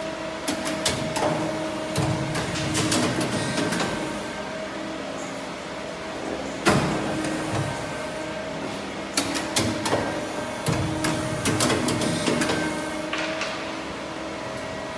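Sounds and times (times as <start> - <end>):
machine motor hum: 0.0 - 14.9
sharp machine clicks and knocks: 0.5 - 4.0, 9.2 - 13.4.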